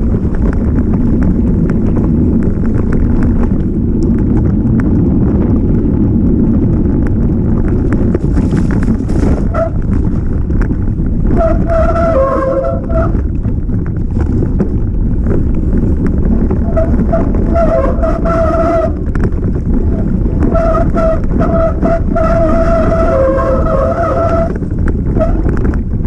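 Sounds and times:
bike rattling: 0:00.0 - 0:26.0
wind rumble on microphone: 0:00.0 - 0:26.0
brake squeal: 0:08.4 - 0:10.0, 0:11.2 - 0:13.3, 0:16.2 - 0:25.7.

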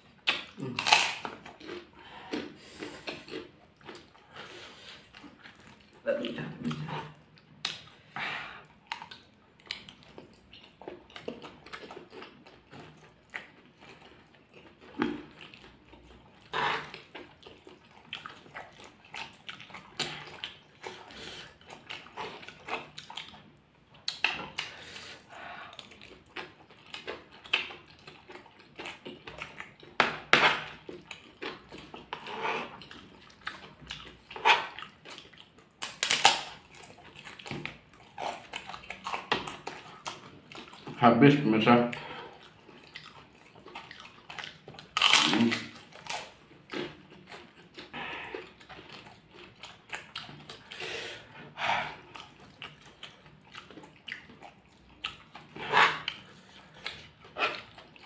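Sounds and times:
chewing and wet mouth sounds: 0:00.0 - 0:58.0
crunching crackers: 0:00.2 - 0:04.4, 0:32.8 - 0:41.4, 0:42.4 - 0:51.3.

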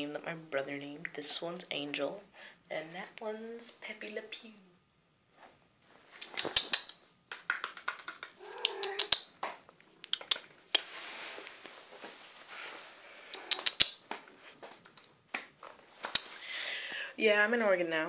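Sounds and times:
rustling noise: 0:05.3 - 0:06.7, 0:10.6 - 0:13.2
sharp clicks: 0:07.8 - 0:09.3, 0:10.0 - 0:10.8, 0:13.3 - 0:14.0
kitten meow: 0:08.4 - 0:09.2.

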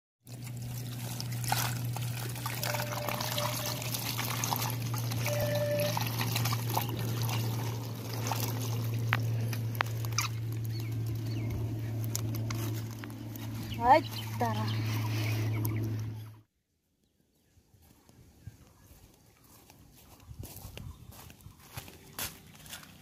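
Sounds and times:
water pouring onto leafy ground: 0:00.2 - 0:15.2
steady low hum: 0:00.3 - 0:16.4.

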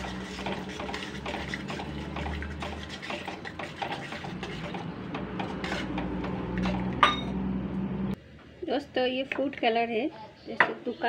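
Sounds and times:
spoon scraping metal pan: 0:00.0 - 0:07.2.

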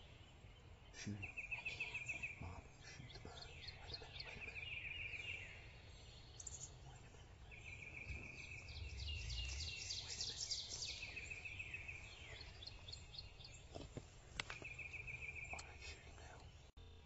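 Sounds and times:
songbird trill: 0:00.0 - 0:17.0
high bird chirps: 0:00.9 - 0:13.8, 0:14.4 - 0:16.5
low rumble: 0:06.8 - 0:13.2.

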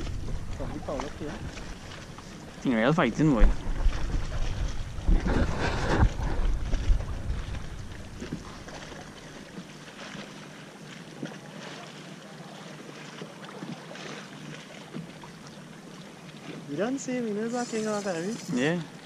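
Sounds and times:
wind buffeting microphone: 0:00.0 - 0:08.5
choppy water along a hull: 0:00.0 - 0:19.0.

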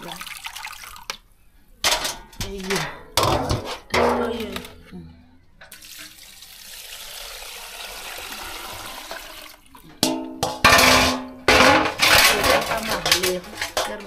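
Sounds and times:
grains washed in water: 0:00.0 - 0:01.2, 0:05.7 - 0:09.9
water pouring through colander: 0:00.0 - 0:01.2, 0:05.7 - 0:10.0
metal basin clanging: 0:01.8 - 0:04.9, 0:08.7 - 0:14.0.

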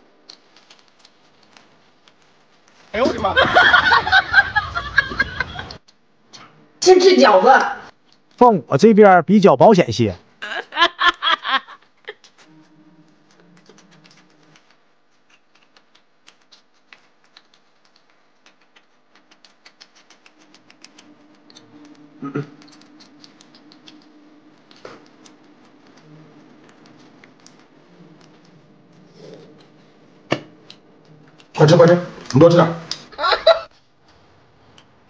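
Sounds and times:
faint steady hum: 0:00.0 - 0:35.0
wet chewing sounds: 0:13.1 - 0:31.6.

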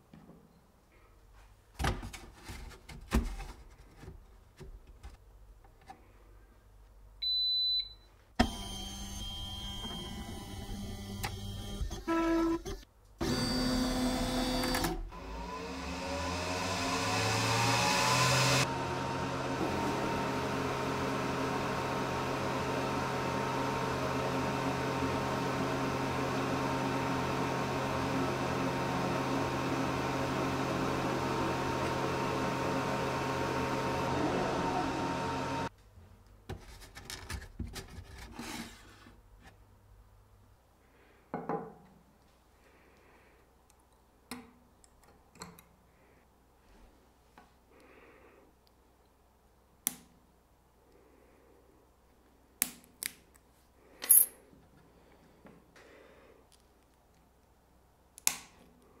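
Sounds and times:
motor whine and hum: 0:08.4 - 0:35.7.

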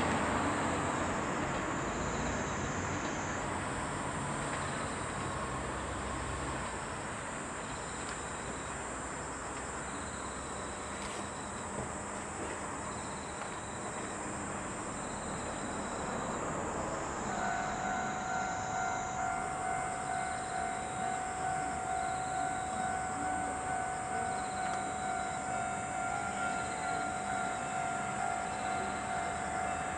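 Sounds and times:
diesel railcars rumbling: 0:00.0 - 0:29.9
level crossing alarm clanging: 0:17.2 - 0:29.9.

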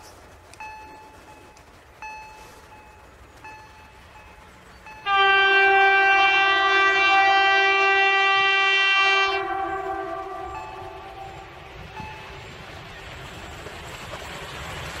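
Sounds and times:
locomotive horn blast: 0:05.0 - 0:12.3.

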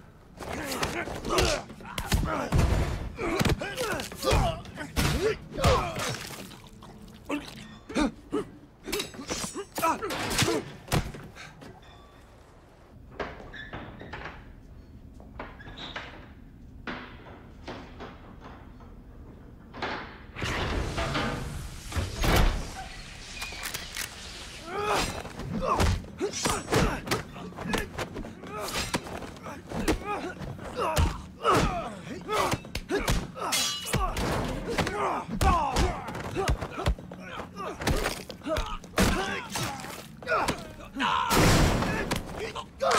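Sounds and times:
fighters grunting: 0:00.4 - 0:06.5, 0:24.6 - 0:42.9.

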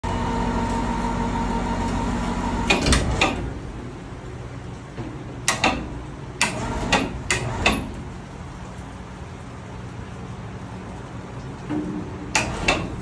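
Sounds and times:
electric hoist humming: 0:00.0 - 0:09.5.

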